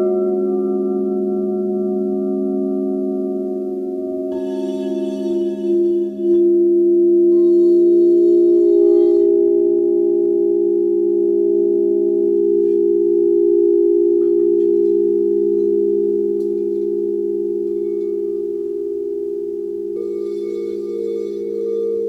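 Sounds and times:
crystal singing bowls ringing: 0.0s - 22.0s.

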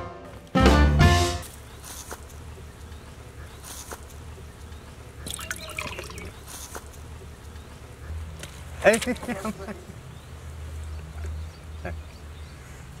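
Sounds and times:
water running off fish: 5.2s - 6.4s
water splashing: 5.2s - 6.4s.

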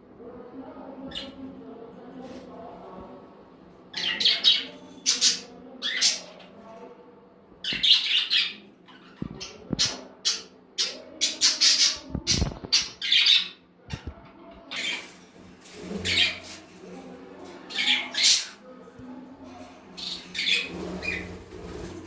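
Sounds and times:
parrots squawking: 20.0s - 21.3s.

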